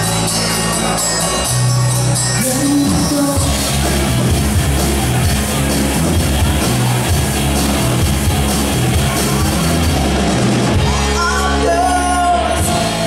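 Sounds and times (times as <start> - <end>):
bass guitar: 0.0 - 13.0
drums: 0.0 - 13.0
electric guitar: 0.0 - 13.0
person singing: 2.4 - 3.9, 10.8 - 13.0.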